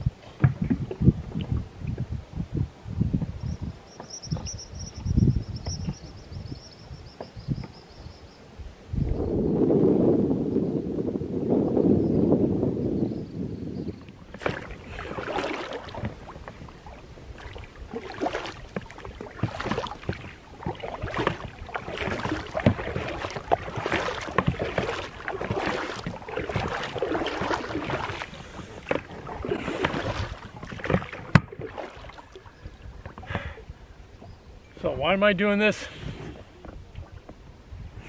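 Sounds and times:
oars splashing water: 0:00.0 - 0:02.2, 0:03.5 - 0:07.9, 0:14.0 - 0:34.9, 0:35.7 - 0:37.6
oars knocking: 0:14.2 - 0:32.2.

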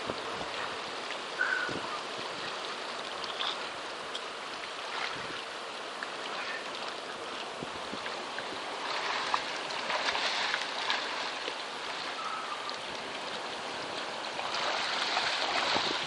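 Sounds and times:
swimmers splashing in water: 0:08.0 - 0:16.0.

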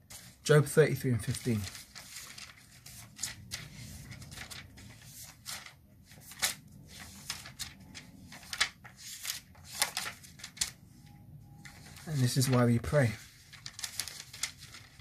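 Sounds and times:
paper pages rustling: 0:00.0 - 0:15.0.

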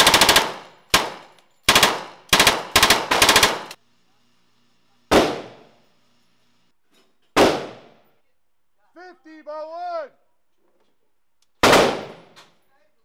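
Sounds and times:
submachine gun bursts: 0:00.0 - 0:03.8
single gunshots with echo: 0:05.1 - 0:05.7, 0:07.4 - 0:08.0, 0:11.6 - 0:12.4.

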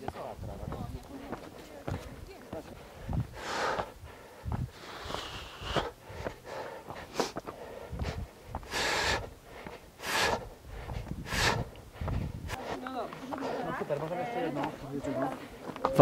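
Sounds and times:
footsteps on stone path: 0:00.0 - 0:16.0
heavy breathing: 0:02.8 - 0:14.0.

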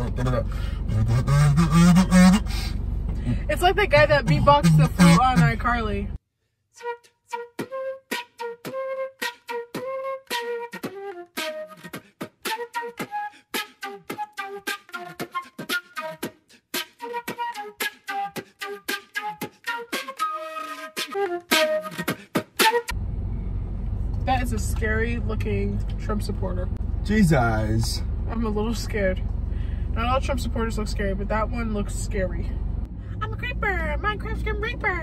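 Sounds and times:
beatboxing clicks and thumps: 0:00.0 - 0:02.6, 0:03.8 - 0:05.7, 0:07.6 - 0:22.9
flute melody notes: 0:01.0 - 0:02.5, 0:06.8 - 0:23.0.

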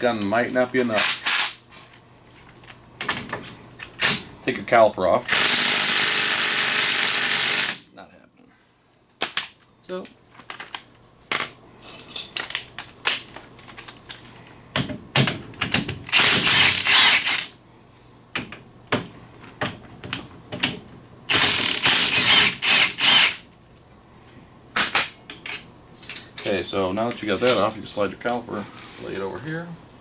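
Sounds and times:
impact wrench hammering: 0:15.2 - 0:17.5, 0:21.3 - 0:23.4.

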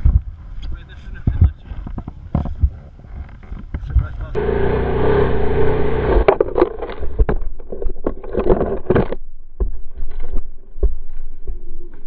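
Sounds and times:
two-stroke engine running: 0:04.4 - 0:06.3.

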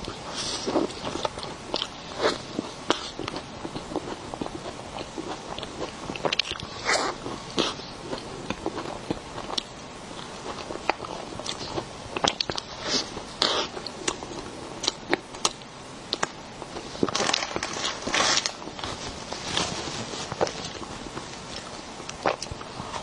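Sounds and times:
person chewing with mouth clicks: 0:00.0 - 0:17.1, 0:20.4 - 0:23.0
paper rustling: 0:17.0 - 0:21.7.

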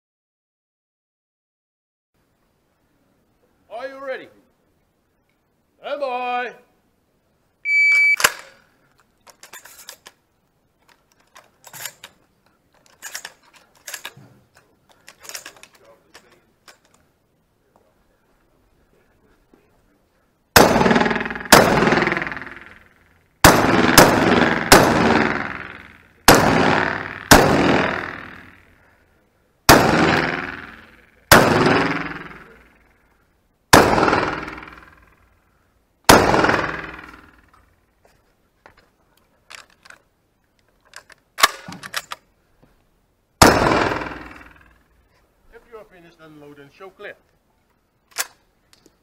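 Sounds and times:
shotgun blasts echoing: 0:20.6 - 0:28.7, 0:29.7 - 0:32.8, 0:33.7 - 0:35.1, 0:36.1 - 0:37.4, 0:43.4 - 0:44.8.

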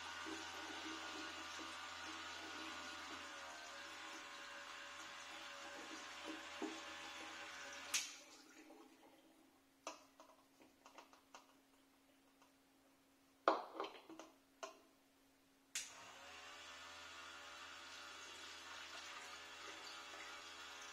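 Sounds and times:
electric pump running: 0:00.0 - 0:08.1, 0:15.8 - 0:20.9.

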